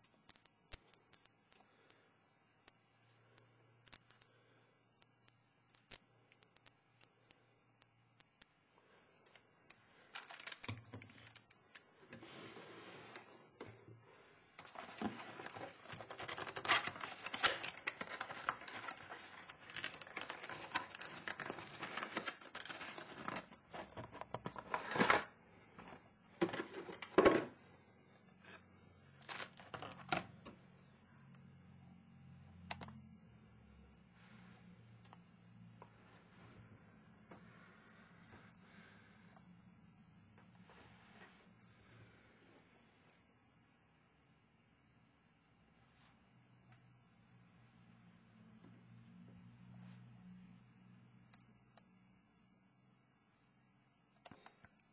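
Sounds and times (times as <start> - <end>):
packaging rustling and crinkling: 10.0 - 13.3, 14.6 - 27.5, 29.2 - 30.3.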